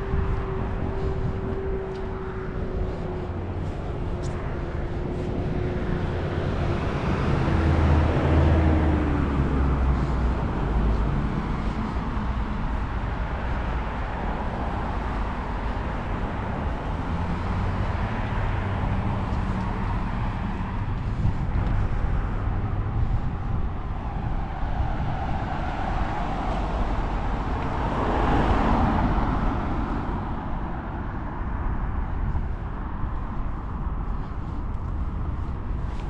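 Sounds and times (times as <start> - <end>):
road traffic rumble: 0.0 - 36.0
vehicle passing: 0.0 - 36.0.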